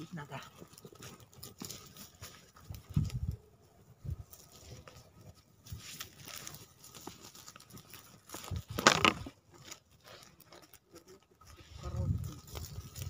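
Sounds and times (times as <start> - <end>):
crunching on snowy leaf litter: 0.0 - 13.0
campfire crackling and popping: 8.3 - 9.4.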